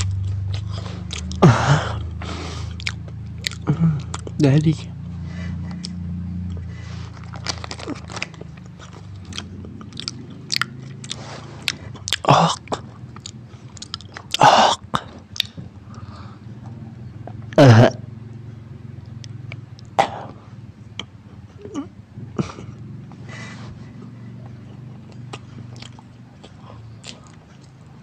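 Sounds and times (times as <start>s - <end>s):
person chewing crunchy food: 0.0s - 4.4s, 5.8s - 16.0s, 24.4s - 28.0s
steady low hum: 0.0s - 28.0s.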